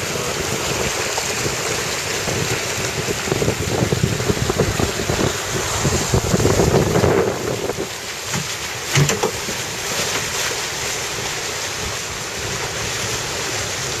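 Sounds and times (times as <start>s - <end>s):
wind buffeting microphone: 0.0s - 10.0s
water splashing along a hull: 0.0s - 14.0s.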